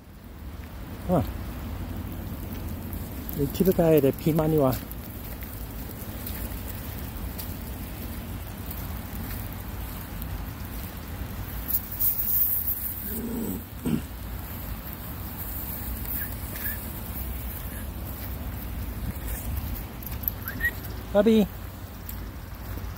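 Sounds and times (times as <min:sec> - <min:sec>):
steady rain falling: 0:00.0 - 0:22.9
wind rumble on microphone: 0:00.0 - 0:22.9
low-pitched vocal sound: 0:13.0 - 0:14.1.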